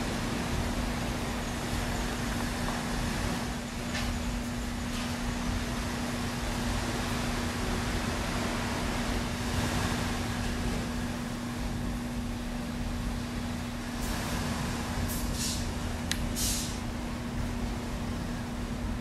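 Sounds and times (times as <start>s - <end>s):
rumbling hissing background noise: 0.0s - 19.0s
brief high hisses: 16.4s - 16.8s.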